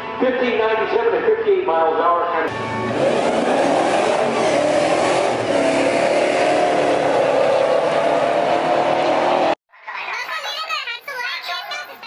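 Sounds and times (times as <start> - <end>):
truck engines at full throttle: 2.5 - 9.6.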